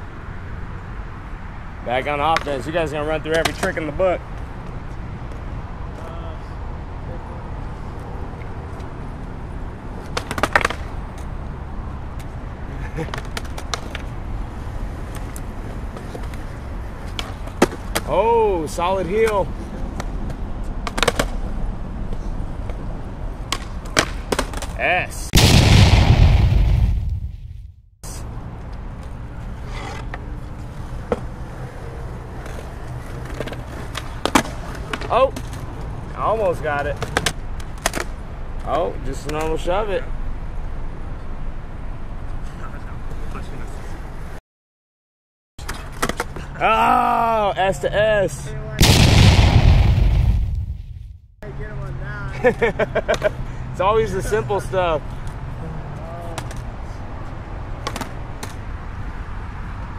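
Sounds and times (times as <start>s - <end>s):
skateboard wheels rolling on concrete: 0.0s - 25.2s, 28.2s - 44.4s, 45.6s - 47.4s, 52.3s - 59.9s
skateboard clacks: 3.3s - 3.8s, 10.0s - 11.0s, 13.0s - 14.1s, 19.2s - 21.5s, 23.5s - 24.8s, 32.3s - 35.6s, 37.0s - 38.1s, 57.8s - 58.6s
skateboard cracking on concrete: 10.0s - 11.0s
skateboard clicks: 10.0s - 11.3s, 13.0s - 14.1s, 20.0s - 21.5s, 37.0s - 38.1s, 57.8s - 58.6s.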